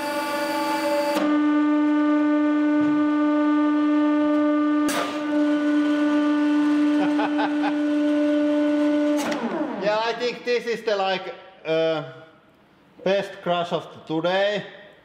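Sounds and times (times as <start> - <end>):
hydraulic pump whining: 0.0 - 10.2.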